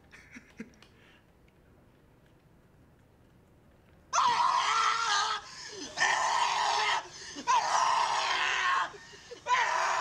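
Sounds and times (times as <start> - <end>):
person screaming: 4.2 - 10.0.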